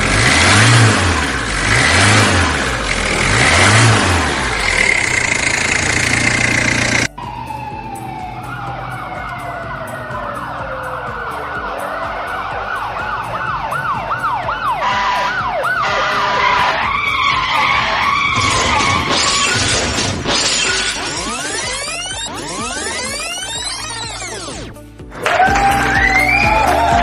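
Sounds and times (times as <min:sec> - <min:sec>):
electronic siren: 0:04.7 - 0:24.8.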